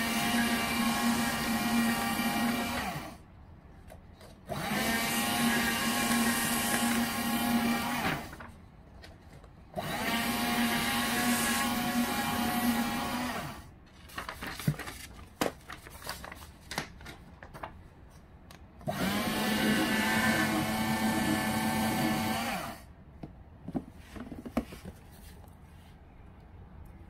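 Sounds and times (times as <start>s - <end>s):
paper shredder motor humming: 0.0s - 3.2s, 4.5s - 8.5s, 9.8s - 13.7s, 18.8s - 22.9s
paper handling knocks: 14.1s - 17.8s.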